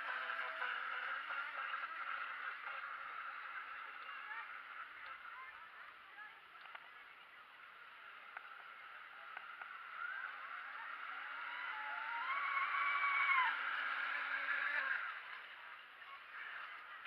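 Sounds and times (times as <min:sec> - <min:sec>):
model speedboat motor whine: 0:00.0 - 0:17.0.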